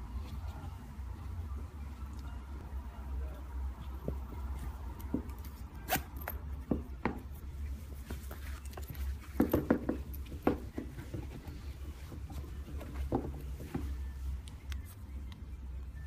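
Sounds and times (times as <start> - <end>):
low steady hum: 0.0 - 16.0
metal zipper clicks and rasps: 5.4 - 6.4.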